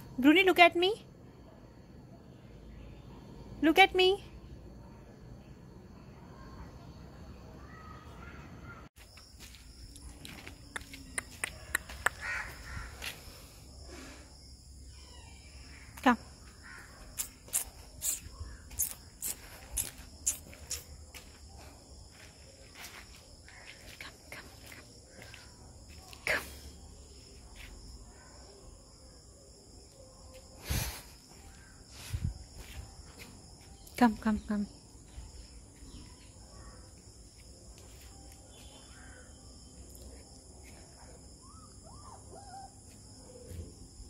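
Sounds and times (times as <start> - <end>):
insects chirring: 0.0 - 44.0
footsteps scuffing on asphalt: 9.0 - 13.2
high-pitched insect buzz: 13.9 - 23.9.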